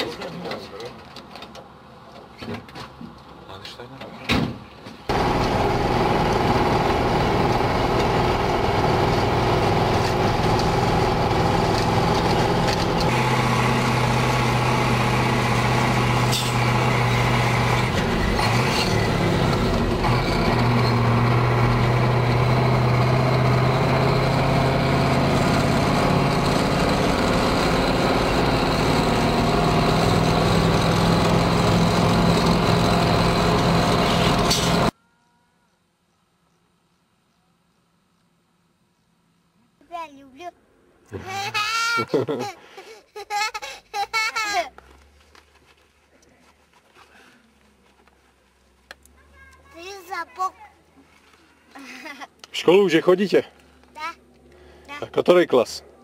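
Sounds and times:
road noise: 0.0s - 35.0s, 43.6s - 56.0s
truck engine running: 5.1s - 34.9s.

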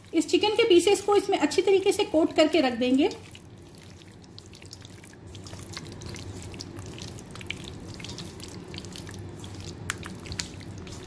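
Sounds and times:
hand mixing meat in marinade: 0.0s - 11.0s
small wet squelches and clicks: 2.9s - 11.0s.

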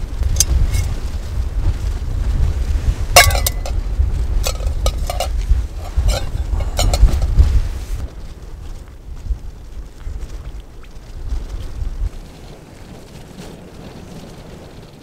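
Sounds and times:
wind rumble on microphone: 0.0s - 15.0s
metal cookware clinking: 3.2s - 3.8s, 4.4s - 7.3s.

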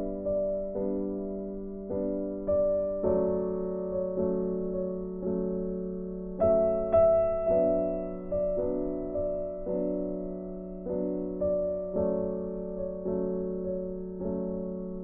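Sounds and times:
soft piano chords: 0.0s - 15.0s.

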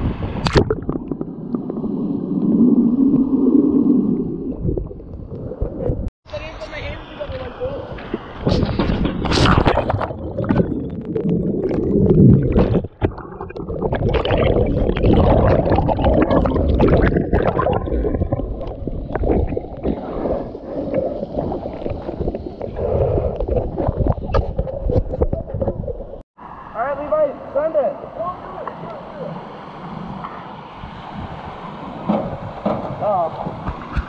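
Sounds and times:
heavy splash: 9.2s - 24.3s
muffled underwater gurgling: 9.3s - 26.2s
pool water splashing: 9.4s - 25.6s.

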